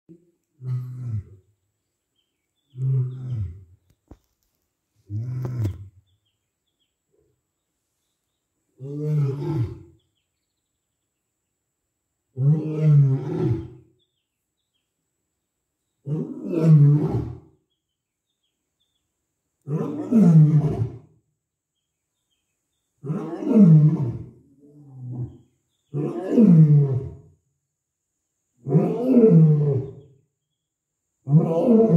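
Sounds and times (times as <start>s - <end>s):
lion roaring: 8.8s - 9.9s, 12.4s - 13.8s, 16.1s - 17.4s, 19.7s - 21.1s, 23.0s - 25.4s, 26.0s - 27.2s, 28.6s - 30.0s, 31.3s - 31.9s.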